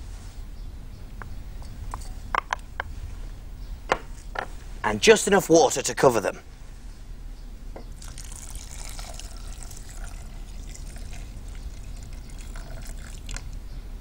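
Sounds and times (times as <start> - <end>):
water pouring into saucepan: 8.0 - 13.4.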